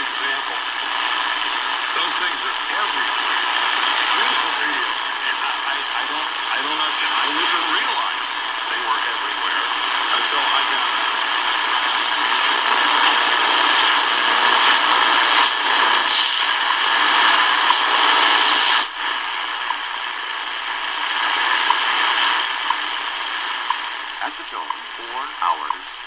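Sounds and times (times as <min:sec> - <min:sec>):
radio tuning whistle: 0:00.0 - 0:18.9
radio static hissing: 0:00.0 - 0:26.0.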